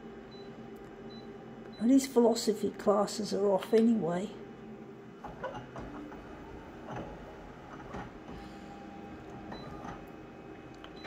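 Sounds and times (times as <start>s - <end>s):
scanner mechanism whirring: 5.1s - 11.0s.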